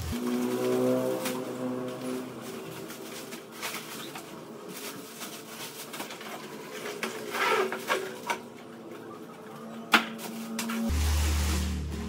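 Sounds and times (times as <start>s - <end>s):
plastic and cardboard rustling: 0.1s - 9.2s.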